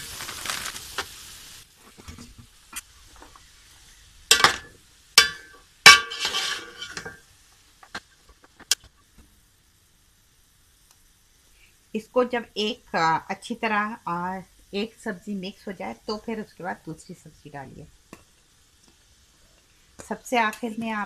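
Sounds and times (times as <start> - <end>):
vegetables sizzling in a pot: 0.0 - 21.0
metal spoon scraping a pot: 5.2 - 7.2.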